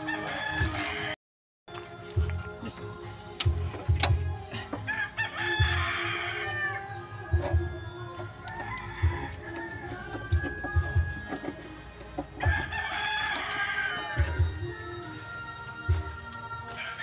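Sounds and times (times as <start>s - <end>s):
rooster crowing: 0.0s - 1.2s, 4.8s - 7.7s, 8.3s - 10.3s, 12.4s - 14.5s, 16.7s - 17.0s.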